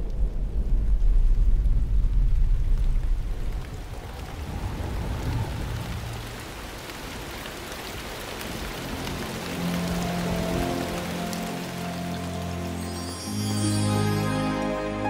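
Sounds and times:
thunder rumble: 0.0 - 11.9
steady rain: 0.0 - 15.0.

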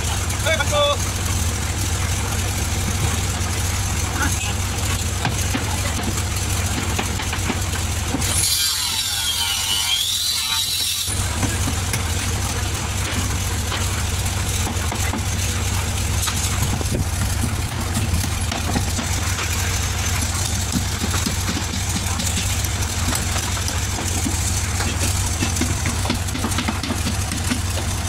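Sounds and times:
machinery rumble: 0.0 - 28.0
hammer knocking on wood: 17.4 - 19.2, 20.2 - 28.0.

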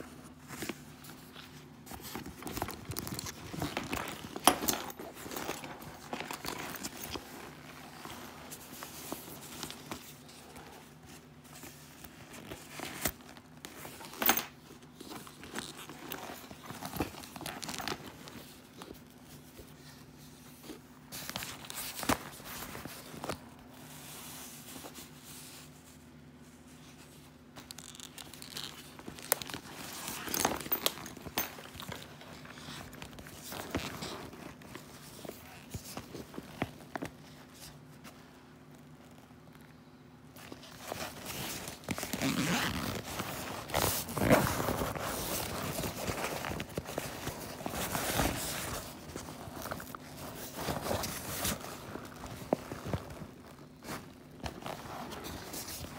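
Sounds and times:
fabric bag rustling and crinkling: 0.0 - 55.9
handling knocks and clicks: 1.8 - 7.4.

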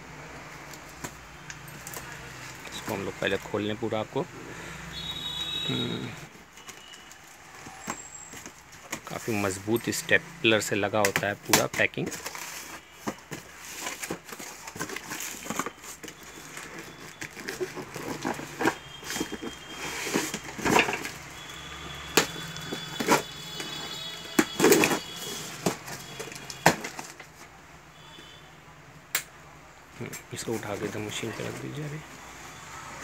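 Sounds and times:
cardboard box being opened: 11.5 - 21.2.

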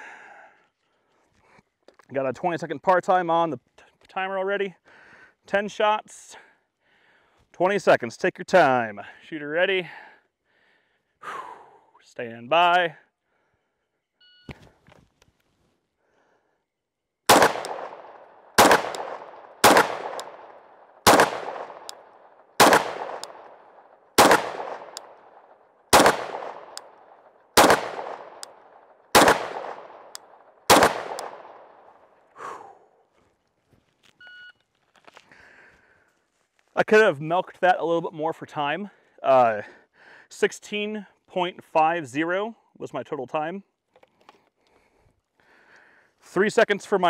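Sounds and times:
pistol shots echoing: 17.3 - 31.9.

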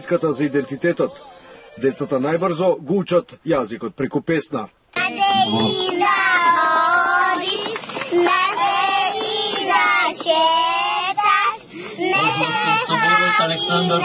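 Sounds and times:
girls singing together: 5.0 - 14.0.

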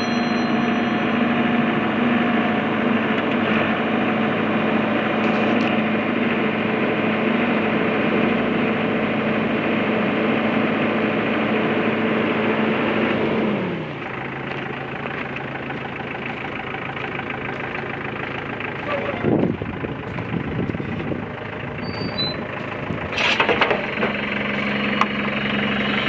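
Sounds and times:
diesel engine running: 0.0 - 26.0.

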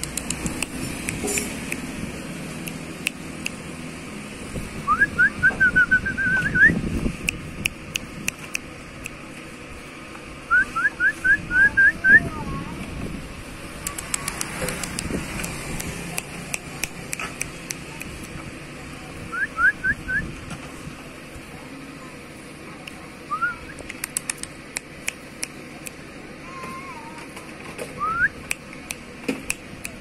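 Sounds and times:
sharp clicks: 0.0 - 1.9, 13.8 - 18.4, 23.8 - 26.0.

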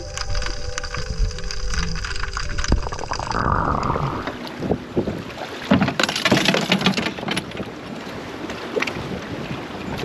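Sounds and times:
water lapping against boat: 3.7 - 10.0
splashes and knocks: 5.0 - 9.1.

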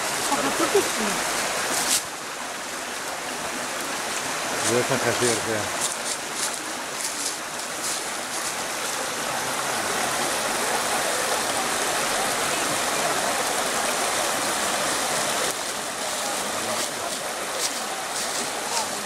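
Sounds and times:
running water rushing: 0.0 - 19.0.

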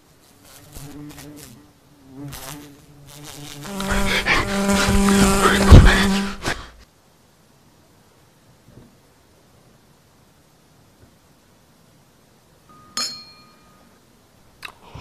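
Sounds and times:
wasp buzzing: 0.0 - 6.8.

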